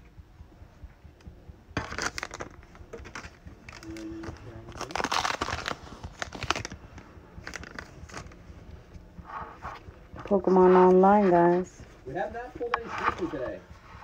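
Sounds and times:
foil wrapper crinkling and tearing: 1.8 - 6.8, 7.4 - 8.4.

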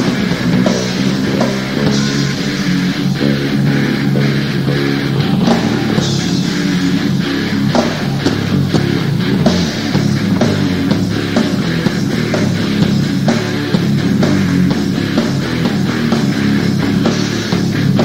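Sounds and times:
thrash metal band playing live: 0.0 - 18.0.

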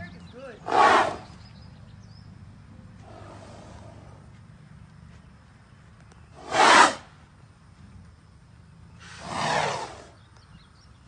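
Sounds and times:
horse snorting: 0.6 - 1.3, 9.1 - 10.1.

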